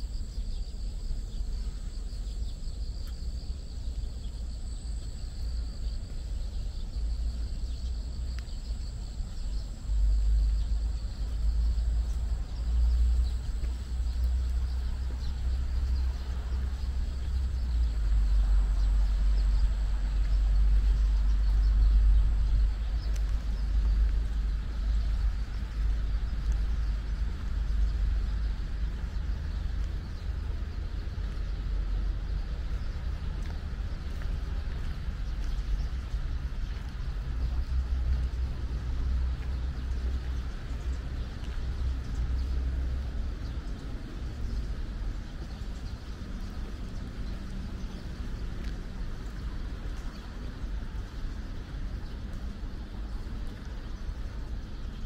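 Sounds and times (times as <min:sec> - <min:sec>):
high-pitched insect trill: 0:00.0 - 0:41.1
wind buffeting microphone: 0:00.0 - 0:55.0.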